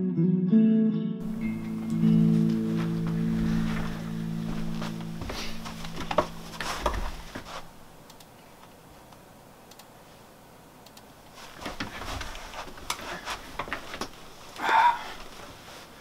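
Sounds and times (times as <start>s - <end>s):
person shifting in desk chair: 1.9s - 7.7s, 11.3s - 14.5s
computer mouse clicking: 8.0s - 9.9s, 10.8s - 11.1s.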